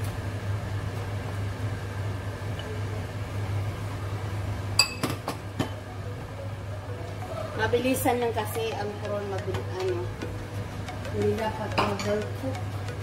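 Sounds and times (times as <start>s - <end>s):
steady low hum: 0.0s - 13.0s
spoon clinking against pot and bowl: 10.9s - 13.0s.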